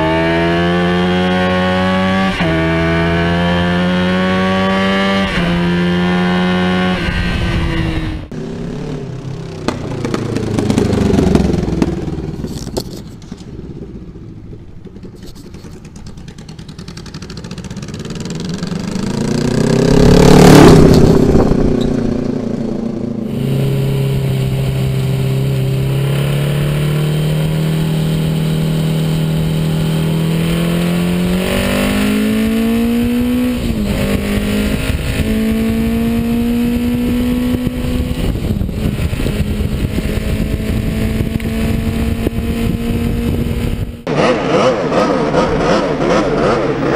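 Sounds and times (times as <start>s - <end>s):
motorcycle engine: 0.0s - 46.9s
wind noise: 3.6s - 8.4s, 17.8s - 46.9s.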